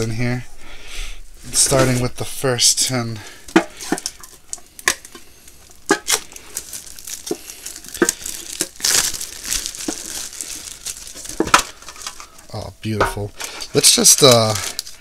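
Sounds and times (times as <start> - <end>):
plastic wrap crinkling and tearing: 3.5 - 15.0.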